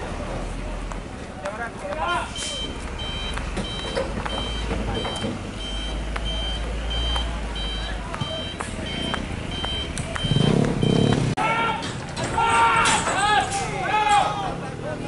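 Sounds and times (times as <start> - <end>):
truck engine rumbling: 0.0 - 15.0
truck reversing alarm beeping: 2.3 - 11.4.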